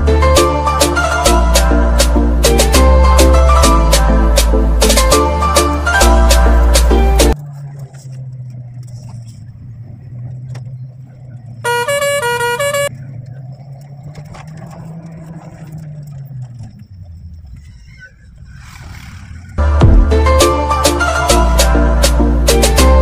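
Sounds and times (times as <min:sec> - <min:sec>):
jeep engine running: 0:00.0 - 0:18.5
horn playing changing notes: 0:11.6 - 0:12.9.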